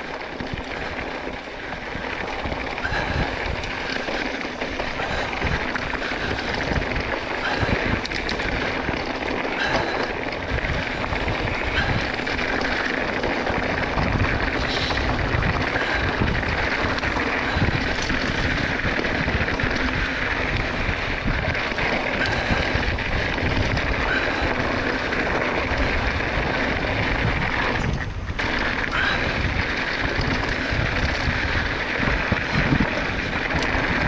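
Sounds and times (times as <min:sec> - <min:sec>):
bike tyres on dirt and gravel: 0:00.0 - 0:34.0
wind rushing over microphone: 0:00.0 - 0:34.0.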